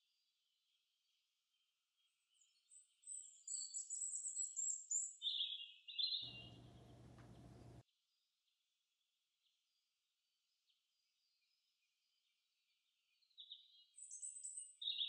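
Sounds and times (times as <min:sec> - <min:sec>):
high-pitched bird chirping: 0:06.1 - 0:07.8
low hum: 0:06.2 - 0:07.8.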